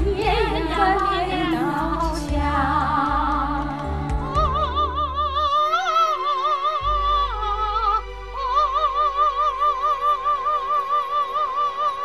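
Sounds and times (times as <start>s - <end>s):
two women singing a duet: 0.0s - 8.6s.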